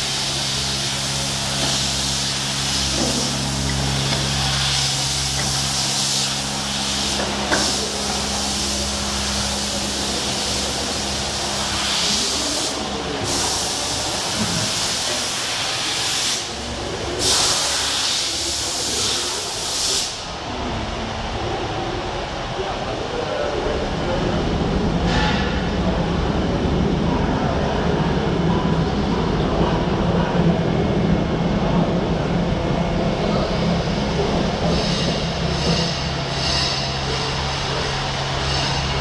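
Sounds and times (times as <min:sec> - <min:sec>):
polishing machine hiss: 0:00.0 - 0:16.5
low machine hum: 0:00.0 - 0:39.0.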